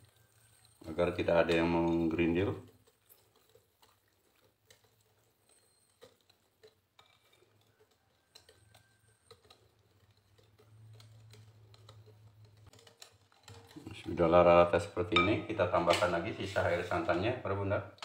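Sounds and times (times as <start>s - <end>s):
whisk tapping glass bowl: 0.7s - 2.6s, 8.3s - 17.2s.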